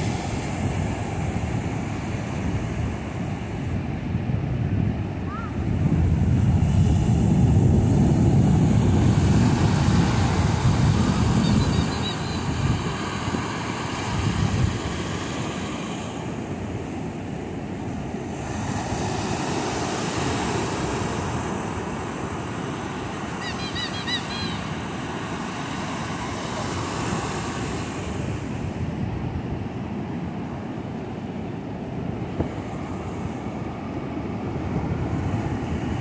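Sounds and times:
wind buffeting microphone: 0.0s - 23.4s, 26.7s - 30.5s, 31.5s - 36.0s
ocean surf breaking: 0.0s - 36.0s.

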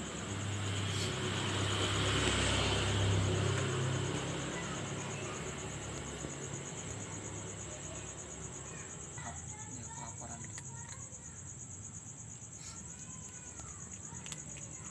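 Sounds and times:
vehicle passing by: 0.0s - 8.6s
insects chirping: 0.0s - 14.9s.

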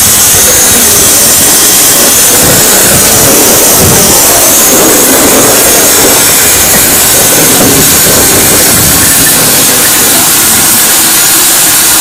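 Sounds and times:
steam hissing: 0.0s - 12.0s
low rumble: 0.1s - 11.0s.

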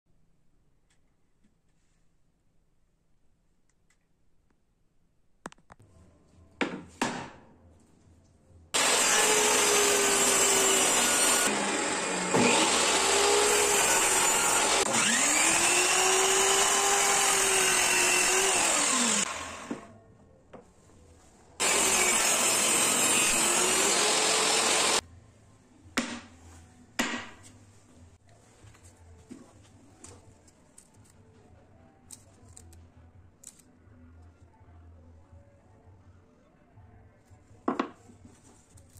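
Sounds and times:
table saw running: 8.8s - 19.8s, 21.6s - 25.0s
miter saw cutting wood: 8.8s - 19.9s, 21.6s - 25.0s.

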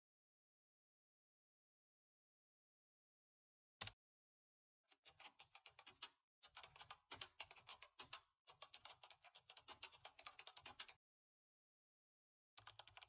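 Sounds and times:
computer keyboard typing: 5.0s - 11.0s, 12.6s - 13.0s.

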